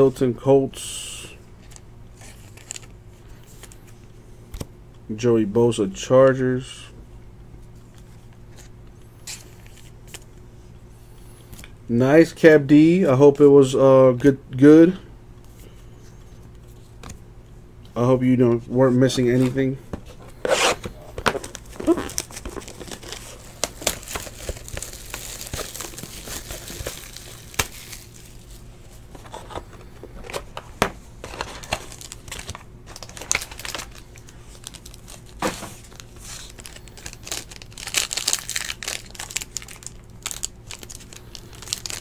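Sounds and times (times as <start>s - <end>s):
foil wrappers crinkling and tearing: 2.2s - 2.9s, 21.4s - 28.6s, 31.2s - 42.0s.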